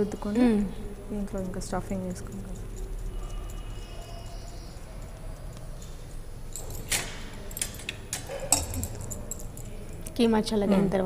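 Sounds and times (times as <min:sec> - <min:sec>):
hands shaping dough: 0:00.0 - 0:03.8.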